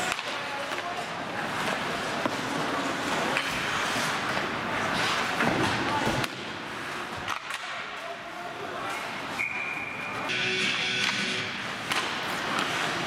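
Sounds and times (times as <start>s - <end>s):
hockey sticks knocking puck: 0.0s - 6.5s, 7.1s - 8.0s, 10.7s - 13.0s.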